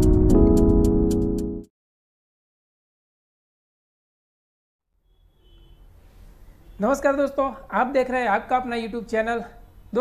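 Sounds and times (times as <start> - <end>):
faint room hiss: 5.0 - 10.0.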